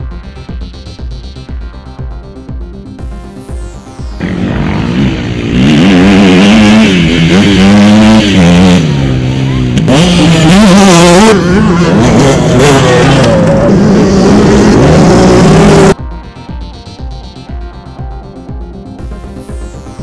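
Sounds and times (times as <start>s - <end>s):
dirt bike engine revving: 4.2s - 16.0s.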